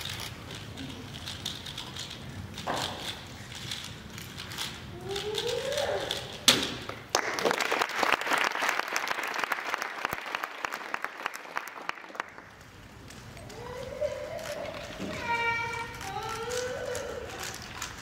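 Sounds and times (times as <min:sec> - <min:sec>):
audience applauding: 0:07.0 - 0:12.6.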